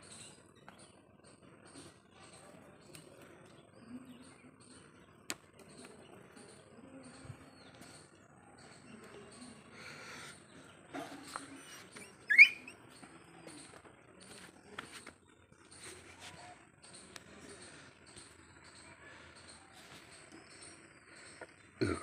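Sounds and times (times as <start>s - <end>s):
faint high chirping: 3.9s - 14.7s
puppy yelp: 12.3s - 12.8s.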